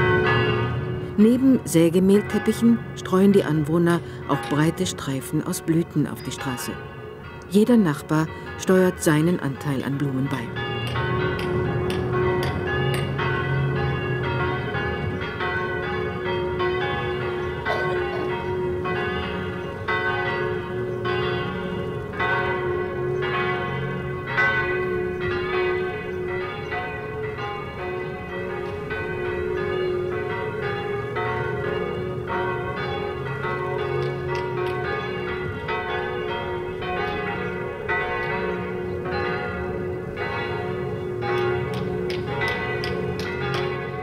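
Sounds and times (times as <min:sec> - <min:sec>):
church bells pealing: 0:00.0 - 0:44.0.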